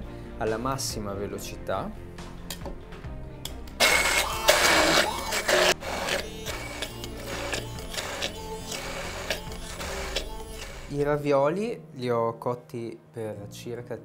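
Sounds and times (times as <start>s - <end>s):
immersion blender whirring: 3.8s - 11.0s.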